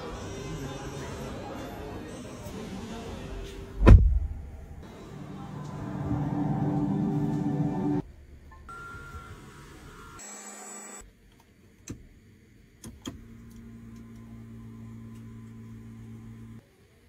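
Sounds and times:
electric seat motor humming: 13.3s - 16.6s.

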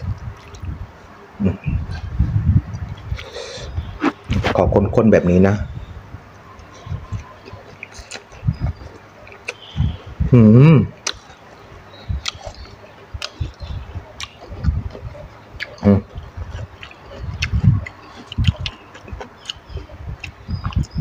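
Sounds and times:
wet chewing and lip-smacking: 0.0s - 0.8s, 6.4s - 10.0s, 11.0s - 11.4s, 12.0s - 21.0s.

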